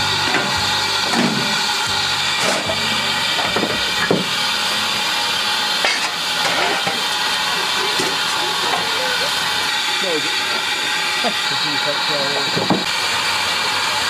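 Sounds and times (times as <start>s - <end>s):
steam hissing: 0.0s - 14.0s
coal shovel scraping and knocking: 5.8s - 7.0s.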